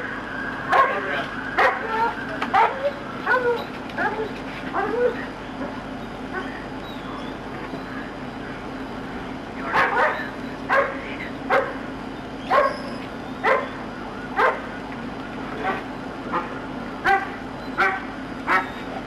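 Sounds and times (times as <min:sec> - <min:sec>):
dog barking: 0:00.7 - 0:01.0, 0:01.6 - 0:03.6, 0:09.7 - 0:11.8, 0:12.5 - 0:13.8, 0:14.4 - 0:14.7, 0:15.6 - 0:18.8.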